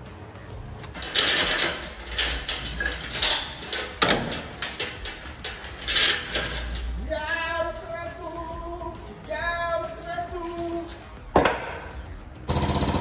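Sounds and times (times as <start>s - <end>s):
background music: 0.0s - 13.0s
heavy chain clanking on steel: 0.9s - 7.4s.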